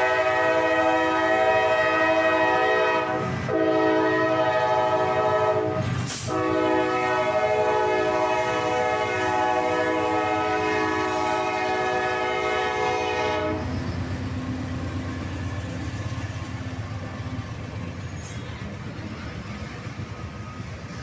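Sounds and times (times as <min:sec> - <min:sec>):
locomotive air horn chord: 0:00.0 - 0:13.8
train wheels on rails: 0:00.0 - 0:21.0
diesel engines rumbling: 0:00.3 - 0:21.0.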